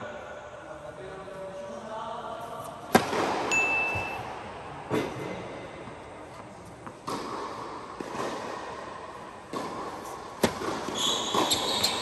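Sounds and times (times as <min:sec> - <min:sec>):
racket striking tennis ball: 0:02.8 - 0:05.3, 0:06.8 - 0:12.0
tennis ball bouncing on hard court: 0:02.9 - 0:04.3, 0:05.8 - 0:12.0
high shoe squeak: 0:03.5 - 0:04.3, 0:10.9 - 0:12.0.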